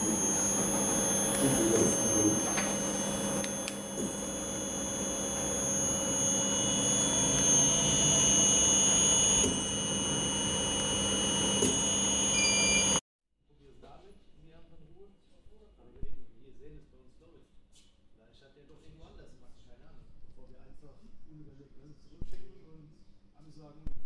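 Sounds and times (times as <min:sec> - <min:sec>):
electrical hum: 0:00.0 - 0:13.0
high-pitched whining tones: 0:00.0 - 0:13.0.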